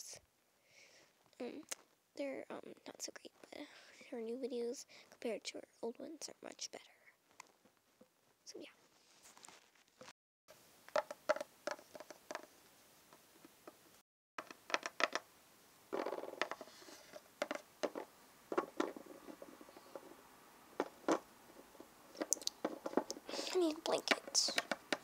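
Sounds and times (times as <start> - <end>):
plastic toys clicking and tapping: 22.2 - 25.0.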